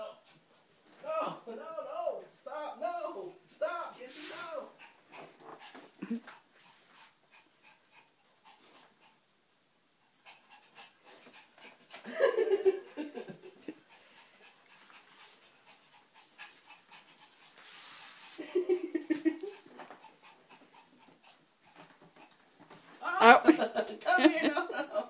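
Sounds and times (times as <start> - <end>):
dog panting: 4.3 - 23.0.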